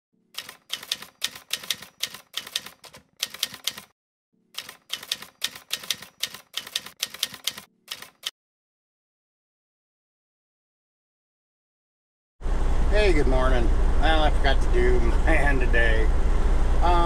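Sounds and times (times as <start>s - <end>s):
typewriter keys clacking: 0.4s - 3.9s, 4.6s - 8.3s.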